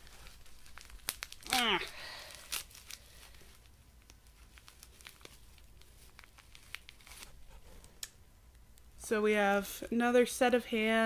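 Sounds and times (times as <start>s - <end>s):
tissue paper crinkling: 0.0s - 7.6s.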